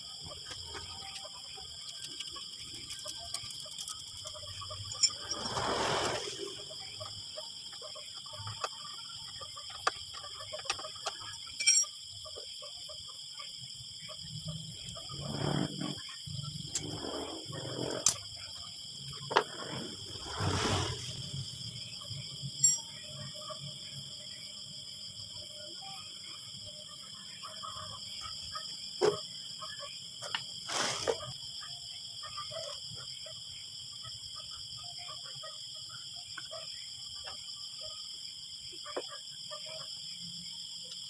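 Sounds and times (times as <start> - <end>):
metal clinks: 1.8 - 5.3, 11.4 - 12.0, 22.6 - 23.0.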